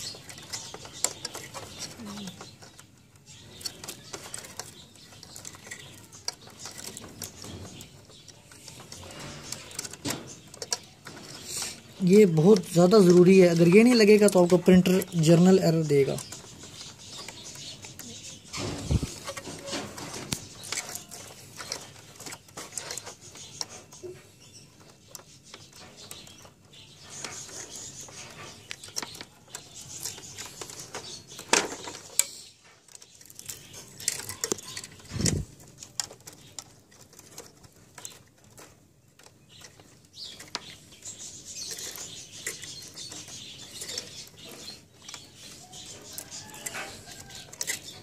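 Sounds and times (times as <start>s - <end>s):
hands handling printer parts: 0.0s - 48.0s.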